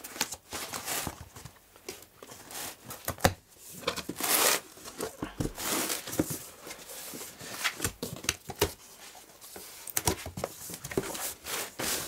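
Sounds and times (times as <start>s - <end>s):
cardboard tearing: 4.1s - 4.7s.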